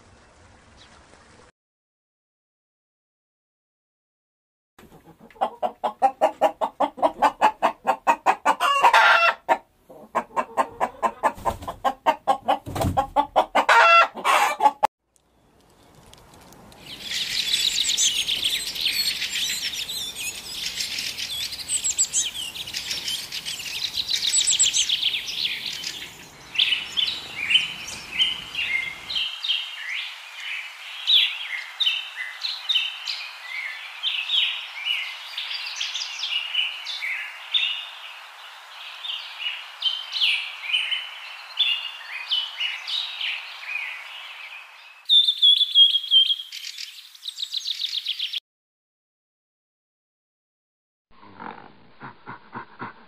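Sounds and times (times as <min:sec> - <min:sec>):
chickens clucking: 0:04.8 - 0:14.9, 0:52.0 - 0:53.0
songbirds twittering: 0:15.2 - 0:48.4
robin singing: 0:16.8 - 0:38.0, 0:38.9 - 0:48.4.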